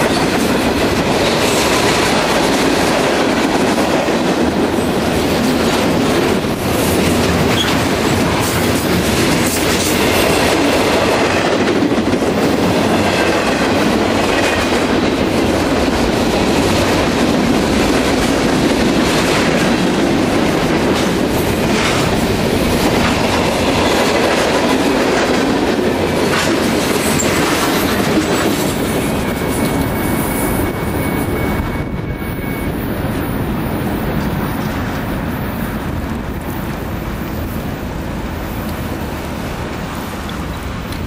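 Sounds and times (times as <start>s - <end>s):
wheels clacking over rail joints: 0.0s - 31.4s
freight train rumbling past: 0.0s - 41.0s
road traffic noise: 0.0s - 41.0s.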